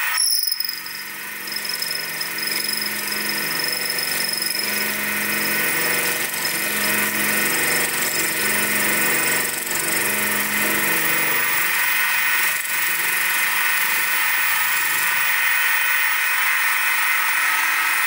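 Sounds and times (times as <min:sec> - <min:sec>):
end mill cutting plastic: 0:00.0 - 0:13.8
milling machine motor whine: 0:00.0 - 0:18.0.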